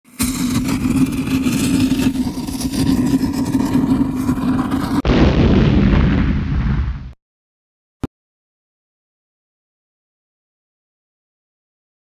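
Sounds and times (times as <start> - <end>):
low hum: 0.1 - 7.1
deep rumbling boom: 0.3 - 7.2.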